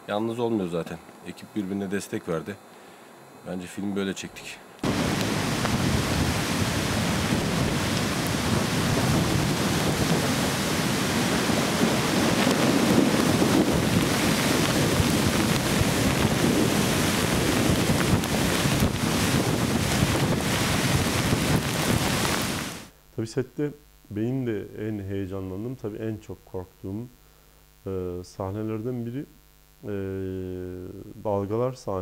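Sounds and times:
wind buffeting microphone: 0:04.8 - 0:22.8
waves crashing: 0:04.8 - 0:22.9.

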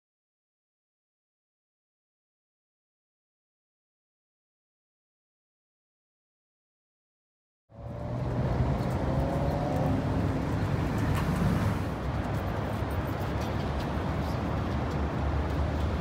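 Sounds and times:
road traffic rumble: 0:07.7 - 0:16.0.

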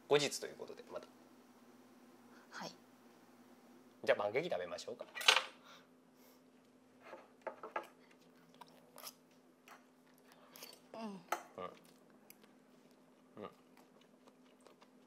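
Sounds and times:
faint hum: 0:00.0 - 0:15.0
person murmuring: 0:13.4 - 0:13.6.

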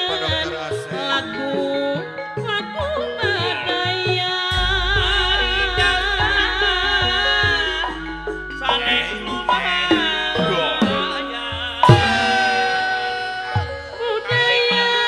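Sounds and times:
deep gong ringing: 0:04.5 - 0:13.7
hand drum strokes: 0:04.5 - 0:14.0
metallophones: 0:04.5 - 0:14.5.

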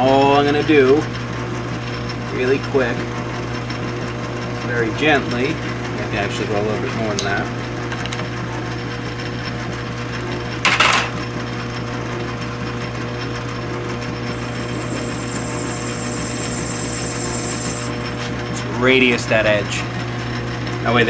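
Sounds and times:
lathe motor hum: 0:12.5 - 0:18.8
high-pitched cutting whine: 0:14.0 - 0:18.7.

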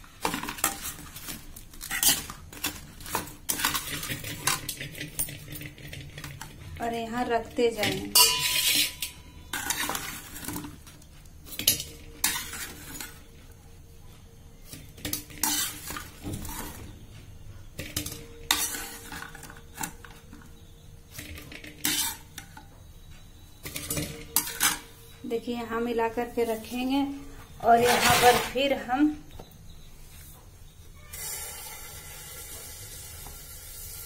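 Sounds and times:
skimmer scraping and clinking on pan: 0:07.7 - 0:10.9, 0:11.5 - 0:13.3, 0:15.0 - 0:17.0, 0:17.8 - 0:20.3, 0:21.1 - 0:22.6, 0:23.6 - 0:25.0, 0:27.7 - 0:28.8
light sizzle: 0:31.1 - 0:34.0.

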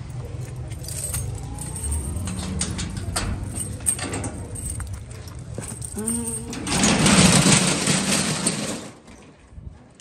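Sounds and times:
keys jangling in a lock: 0:00.7 - 0:07.3.

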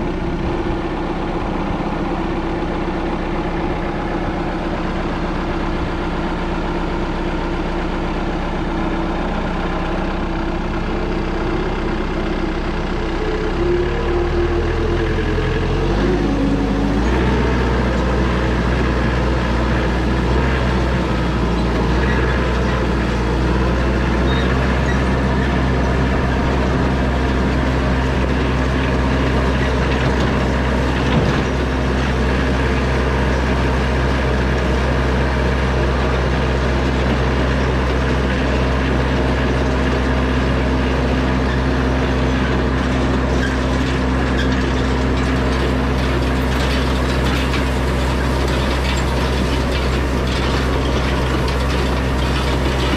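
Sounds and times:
tractor diesel engine running: 0:00.0 - 0:52.9
mechanical clatter of hay rake: 0:17.6 - 0:52.9.

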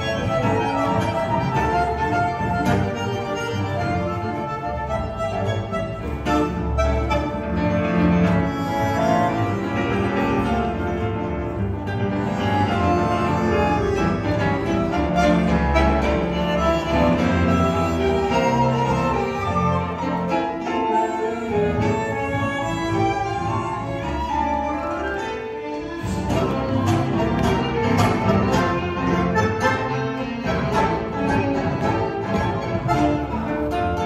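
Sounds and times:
tango ensemble playing: 0:00.0 - 0:34.0.

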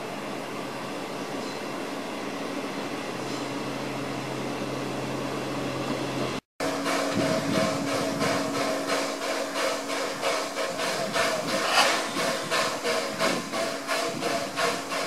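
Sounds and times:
rhythmic steam pulsing: 0:06.6 - 0:15.0
steam locomotive hissing: 0:06.6 - 0:15.0.

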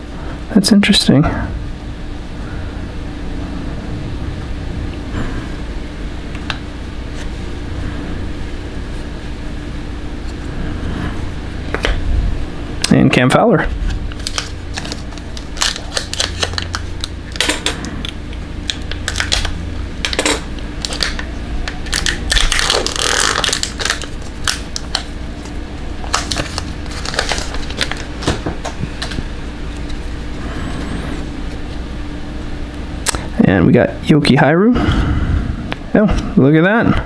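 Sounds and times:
cards rustling: 0:13.9 - 0:30.1.

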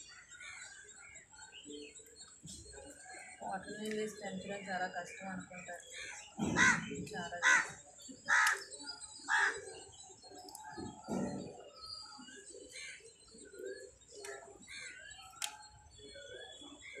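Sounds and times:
small birds chirping: 0:00.0 - 0:17.0
crow cawing: 0:05.9 - 0:08.7, 0:09.3 - 0:09.6.

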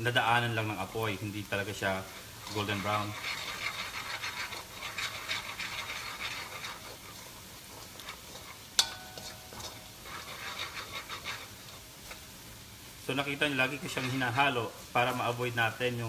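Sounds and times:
garlic sizzling in oil: 0:00.0 - 0:16.0
utensil scraping a wok: 0:00.0 - 0:16.0
utensil knocking metal wok: 0:02.4 - 0:11.6.

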